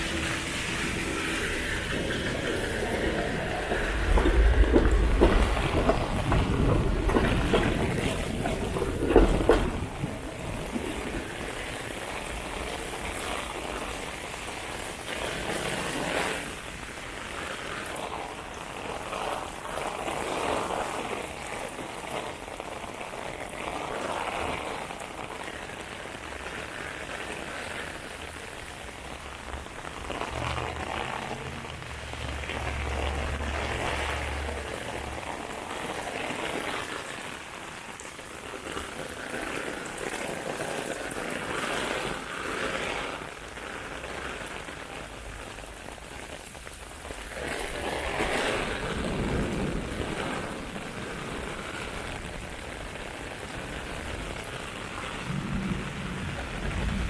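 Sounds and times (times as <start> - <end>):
heavy vehicle passing: 0.0 - 13.1, 28.8 - 36.6
heavy rain on pavement: 0.0 - 57.0.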